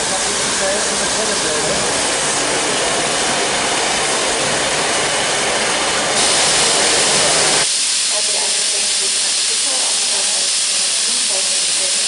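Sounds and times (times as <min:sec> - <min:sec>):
steam hissing: 0:00.0 - 0:12.0.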